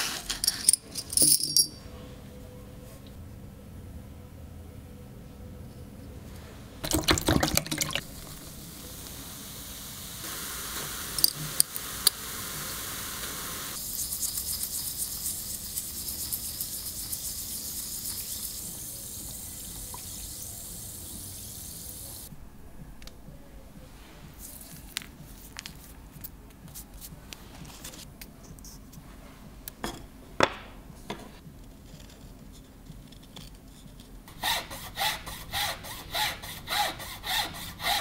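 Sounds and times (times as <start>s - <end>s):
toothbrush scrubbing wet metal plate: 13.8s - 19.0s.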